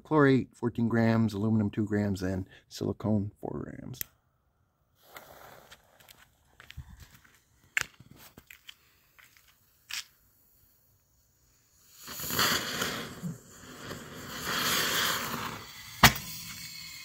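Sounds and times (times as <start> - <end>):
rocket motor hissing rush: 11.4 - 17.0
fuse crackling and popping: 11.8 - 17.0.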